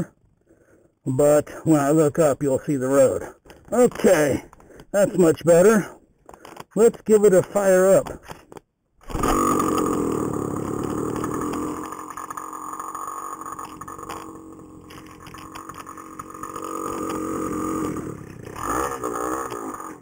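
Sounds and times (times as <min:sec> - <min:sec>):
small two-stroke engine running: 0:09.0 - 0:20.0.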